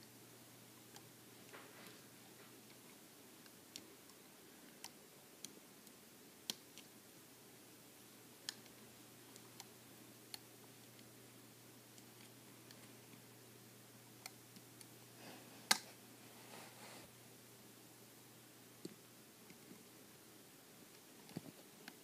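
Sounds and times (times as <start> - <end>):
soft rustling: 1.4 - 3.0, 15.2 - 17.1.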